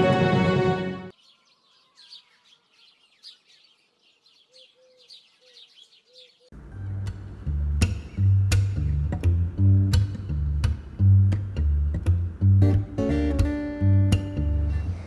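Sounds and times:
birds chirping: 0:01.1 - 0:15.0
music with deep bass line: 0:06.6 - 0:15.0.

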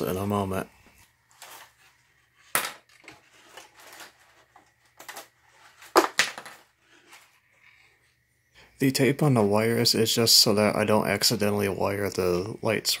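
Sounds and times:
wire leads rustling: 0:00.1 - 0:07.5.

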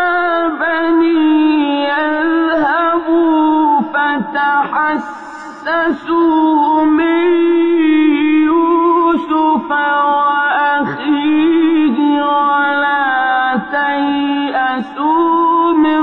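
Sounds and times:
man reciting melodically: 0:00.0 - 0:16.0.

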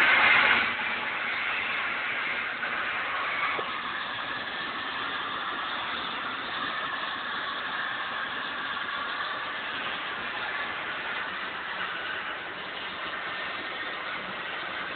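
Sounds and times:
tractor engine running: 0:00.0 - 0:14.9.

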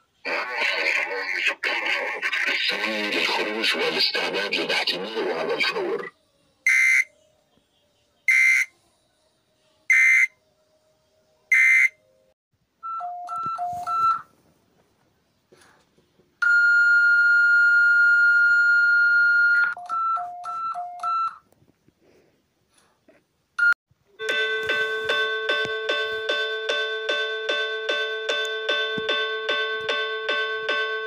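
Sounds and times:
high-low alternating beeps: 0:23.6 - 0:31.0
steady alert tone: 0:24.2 - 0:31.0.

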